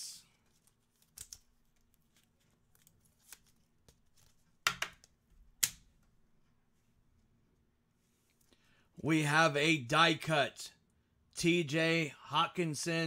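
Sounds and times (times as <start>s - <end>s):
trading cards rustling and clicking: 0.4s - 5.2s.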